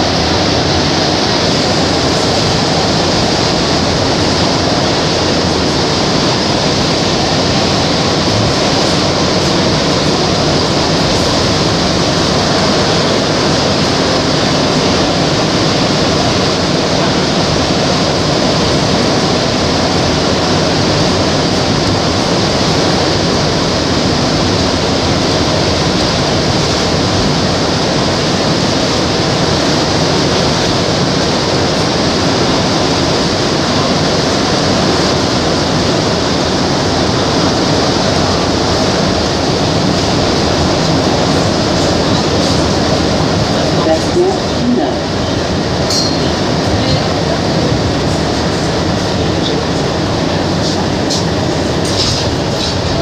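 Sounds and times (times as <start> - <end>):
metro train rushing in tunnel: 0.0 - 53.0.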